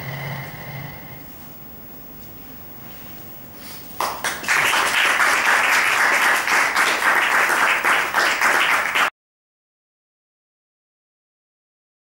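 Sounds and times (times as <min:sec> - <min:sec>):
audience applauding: 0:04.0 - 0:09.1.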